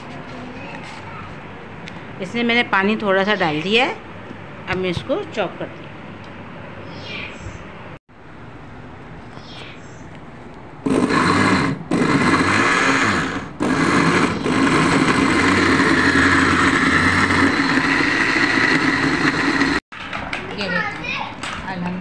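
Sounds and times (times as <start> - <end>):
electric blender running: 10.8 - 19.8.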